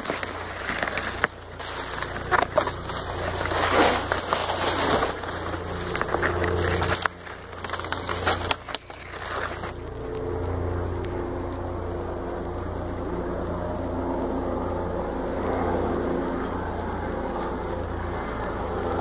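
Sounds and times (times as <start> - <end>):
burning leaves crackling: 0.0 - 19.0
helicopter engine drone: 0.0 - 19.0.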